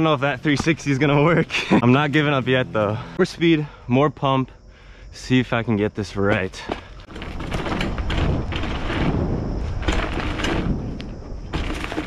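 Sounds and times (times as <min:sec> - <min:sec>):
bike rattling and knocking: 0:00.0 - 0:03.0, 0:06.3 - 0:12.0
tyres grinding over dirt: 0:00.0 - 0:03.8, 0:06.2 - 0:12.0
wind rumble on microphone: 0:07.0 - 0:12.0.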